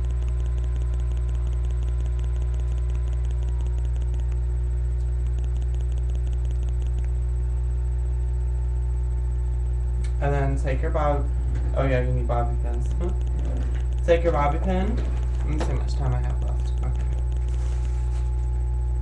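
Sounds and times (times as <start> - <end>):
faint fast ticking: 0.0 - 4.5, 5.2 - 7.2, 12.6 - 18.1
low electrical hum: 0.0 - 19.0.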